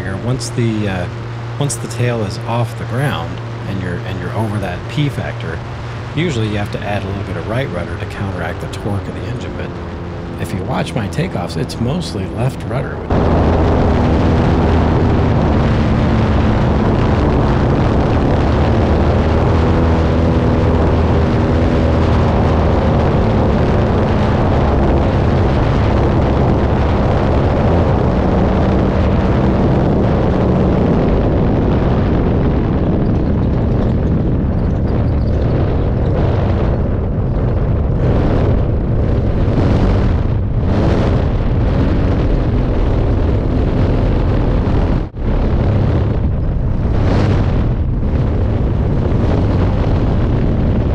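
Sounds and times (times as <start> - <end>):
wheels rumbling over grass: 0.0 - 29.8
wind rush on microphone: 0.0 - 50.9.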